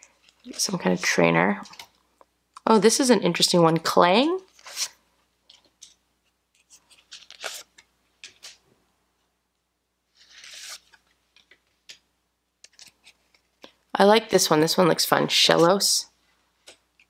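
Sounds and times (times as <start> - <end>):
trading cards rustling and clicking: 6.6 - 8.6, 10.1 - 12.0, 12.6 - 13.8.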